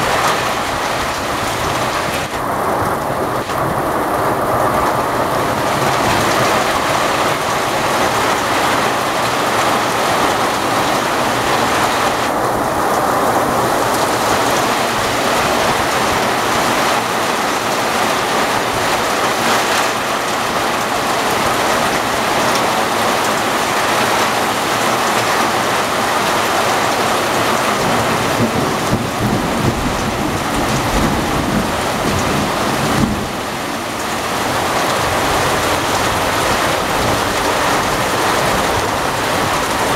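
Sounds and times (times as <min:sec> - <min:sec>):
heavy rain pouring: 0:00.0 - 0:39.9
low thunder rumbling: 0:27.4 - 0:39.9.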